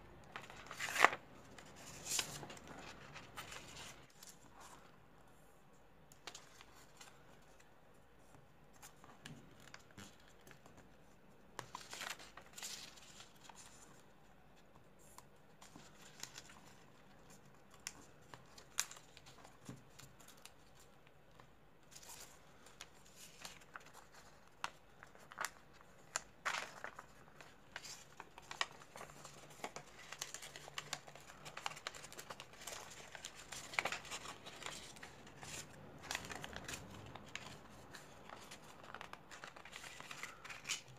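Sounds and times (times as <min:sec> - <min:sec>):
paper crinkling and rustling: 0:00.2 - 0:05.1, 0:06.1 - 0:40.9.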